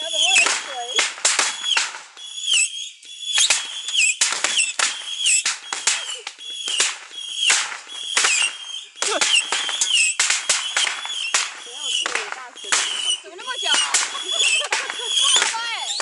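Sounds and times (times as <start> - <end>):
rocket bangs and crackling: 0.0 - 16.0
high falling whistle: 1.5 - 11.9.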